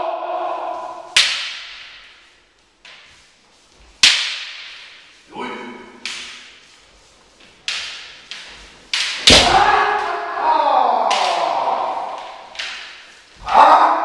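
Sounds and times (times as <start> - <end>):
person shouting: 0.0 - 1.1, 9.4 - 12.2, 13.4 - 14.0
bamboo swords clacking: 0.6 - 5.2, 5.8 - 14.0.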